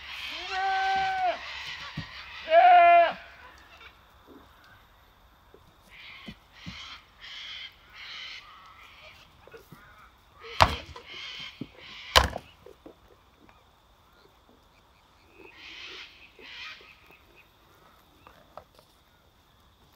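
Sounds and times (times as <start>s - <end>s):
goats clashing heads: 0.0s - 2.8s, 5.5s - 7.5s, 8.7s - 13.2s.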